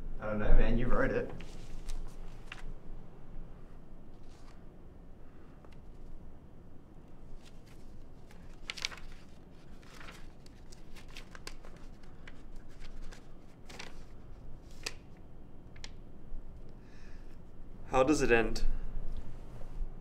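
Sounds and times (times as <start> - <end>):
paper rustling and crinkling: 1.4 - 2.7, 4.2 - 4.6, 7.3 - 15.1.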